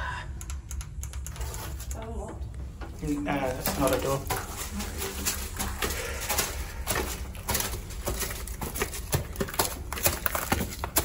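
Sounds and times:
footsteps crunching on loose ground: 0:03.5 - 0:11.0.

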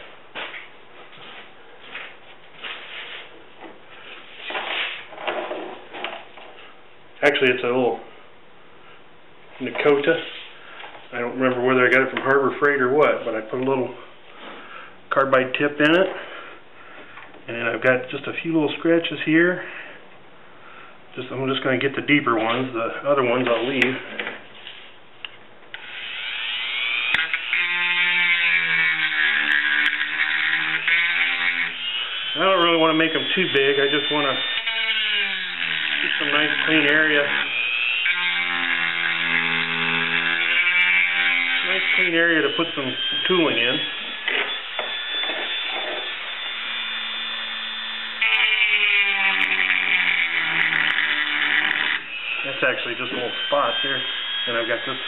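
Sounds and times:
rotary tool whine grinding: 0:25.7 - 0:55.0.

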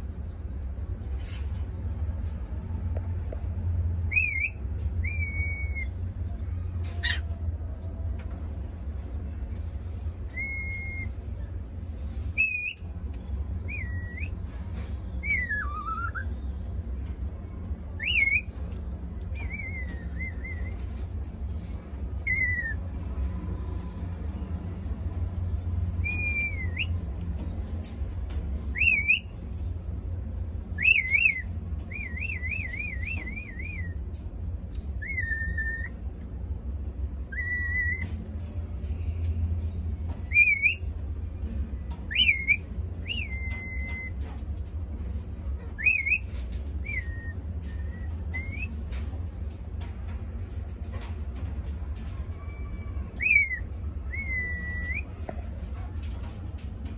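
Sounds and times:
steady low hum: 0:00.0 - 0:56.9
cockatiel whistling: 0:04.1 - 0:05.9, 0:10.3 - 0:11.1, 0:15.2 - 0:16.3, 0:18.0 - 0:18.5, 0:22.2 - 0:22.8, 0:28.7 - 0:29.3, 0:30.8 - 0:34.0, 0:35.0 - 0:35.9, 0:37.3 - 0:38.0, 0:40.3 - 0:40.8, 0:42.1 - 0:44.2, 0:45.8 - 0:48.7, 0:53.2 - 0:55.0.

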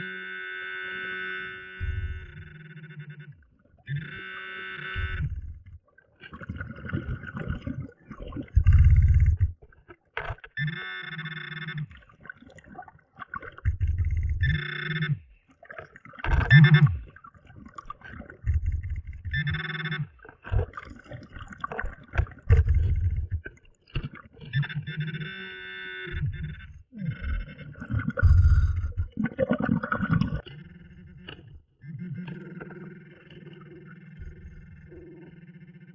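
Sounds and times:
bubbling exhale underwater: 0:06.3 - 0:09.6, 0:27.6 - 0:30.4.

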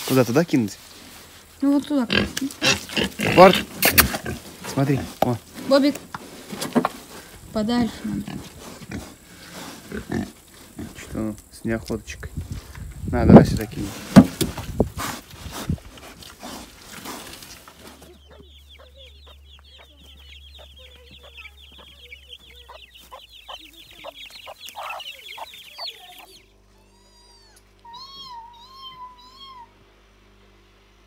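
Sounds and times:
chickens clucking: 0:01.6 - 0:26.9
pigs grunting: 0:02.0 - 0:05.9, 0:06.5 - 0:11.2, 0:13.8 - 0:19.4
rapid high chirping: 0:18.1 - 0:26.4
kittens mewing: 0:20.6 - 0:29.8.

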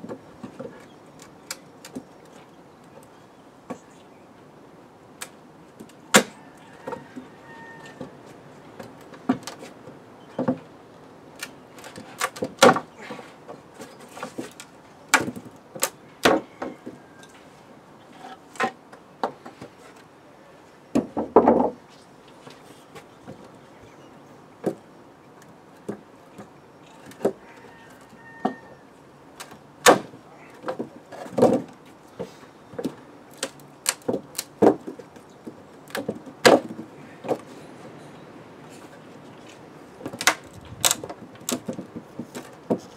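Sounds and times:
wooden pallet cracking: 0:11.4 - 0:16.4, 0:29.4 - 0:31.8, 0:32.8 - 0:37.5, 0:40.0 - 0:42.9
wood creaking: 0:11.4 - 0:17.4, 0:20.9 - 0:23.7, 0:24.6 - 0:38.0, 0:38.6 - 0:42.9.

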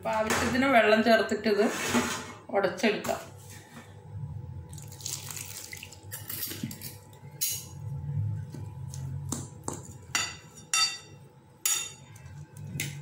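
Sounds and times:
water pouring onto a plate: 0:04.7 - 0:06.3.

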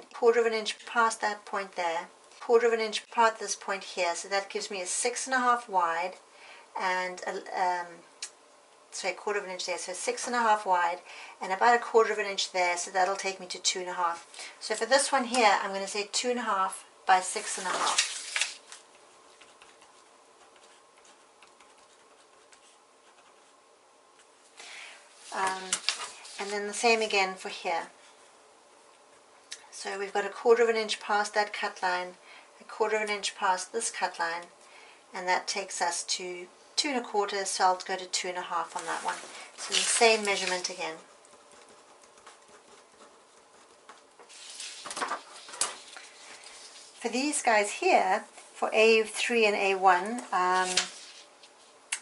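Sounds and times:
low room hum: 0:00.0 - 0:52.0
paper rustling and sliding: 0:17.4 - 0:20.0, 0:25.2 - 0:27.0, 0:38.7 - 0:40.8, 0:44.2 - 0:47.0, 0:50.5 - 0:51.7
pen scratching on paper: 0:20.4 - 0:23.6, 0:41.3 - 0:43.8.

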